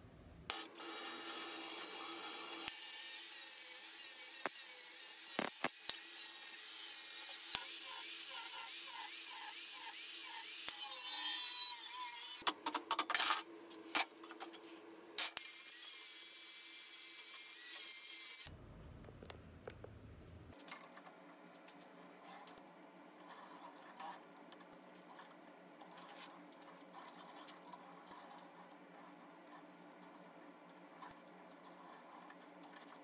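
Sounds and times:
power grinder grinding metal: 0.5s - 12.4s.

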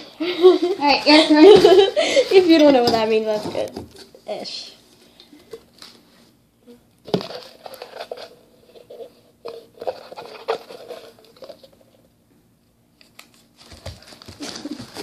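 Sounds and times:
paper rustling and crinkling: 13.1s - 15.0s.

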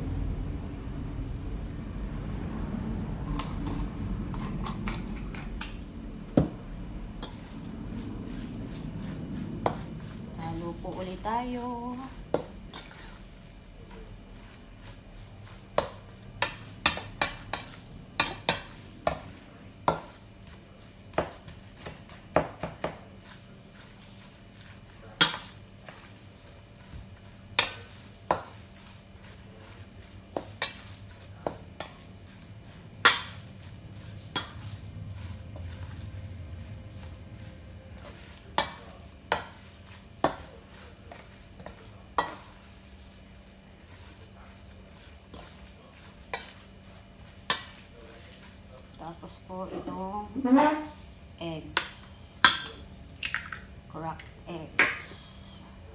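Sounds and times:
metal spoon stirring in bowl: 3.2s - 6.3s, 7.0s - 51.0s
spoon clinking against metal bowl: 51.8s - 52.8s.

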